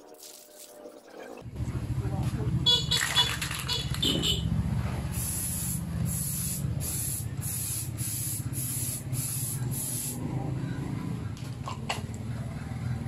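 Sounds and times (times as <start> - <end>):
spray paint hissing bursts: 5.1 - 10.2.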